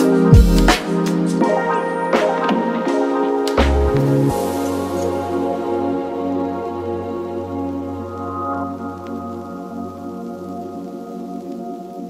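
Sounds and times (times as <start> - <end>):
lofi hip hop chords: 0.0 - 11.6
low bass: 3.6 - 10.1.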